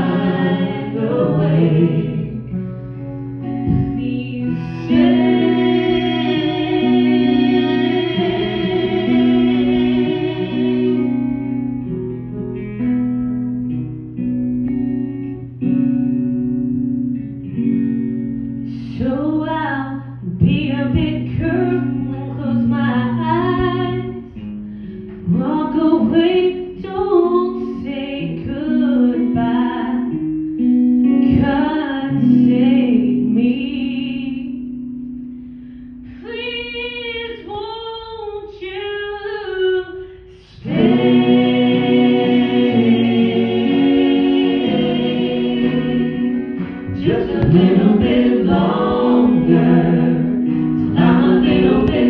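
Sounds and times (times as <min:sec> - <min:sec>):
live guitar accompaniment: 0:00.0 - 0:38.4, 0:39.0 - 0:52.0
woman singing into microphone: 0:03.7 - 0:11.1, 0:18.7 - 0:24.3, 0:25.2 - 0:30.2, 0:31.1 - 0:34.7, 0:46.9 - 0:50.2, 0:50.8 - 0:52.0.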